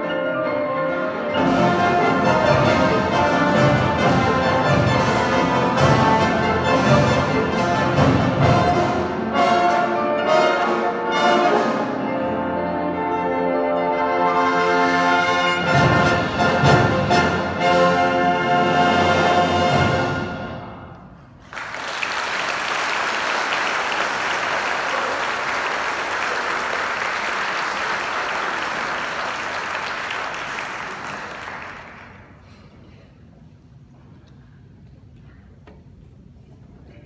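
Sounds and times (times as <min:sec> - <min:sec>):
orchestra and piano chords: 0:00.0 - 0:21.4
audience applause: 0:21.4 - 0:32.4.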